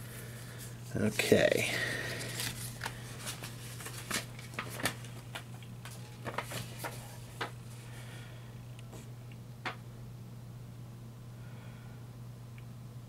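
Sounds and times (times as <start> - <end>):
paper rustling: 1.9 - 7.8.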